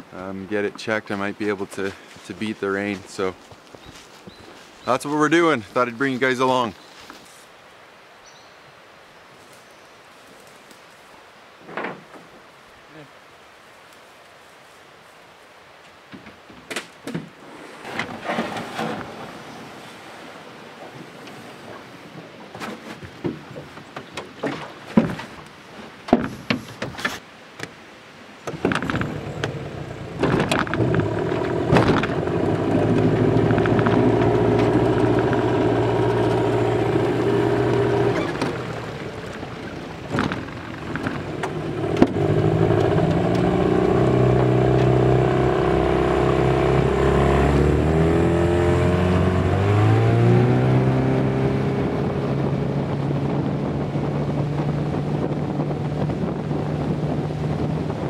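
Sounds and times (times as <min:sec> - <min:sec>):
boat motor humming: 0:28.5 - 0:58.0.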